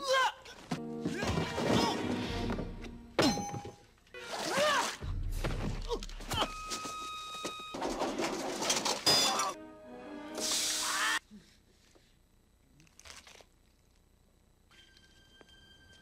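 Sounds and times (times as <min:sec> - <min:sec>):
film music: 0:00.8 - 0:03.2, 0:09.3 - 0:11.2, 0:14.7 - 0:16.0.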